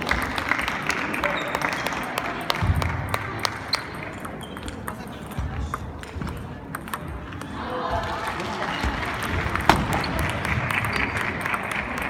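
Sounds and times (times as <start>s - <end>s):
murmur of voices: 0.0s - 12.0s
table tennis balls clicking: 2.7s - 12.0s.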